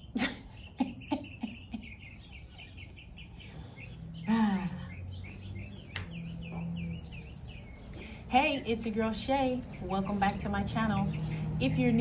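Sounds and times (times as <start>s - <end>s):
woman laughing: 0.1s - 2.1s
small bird chirping: 0.9s - 11.8s.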